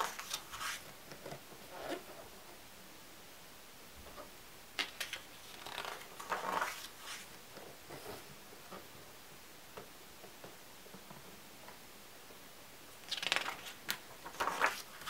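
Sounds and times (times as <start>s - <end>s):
album page turning: 0.0s - 0.9s, 4.8s - 7.3s, 13.0s - 15.0s.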